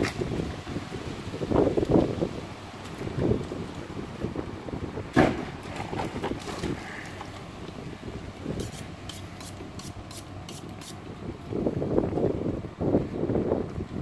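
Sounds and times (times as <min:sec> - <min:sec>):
wind rumble on microphone: 0:00.0 - 0:14.0
knife scraping on honing steel: 0:08.6 - 0:11.0.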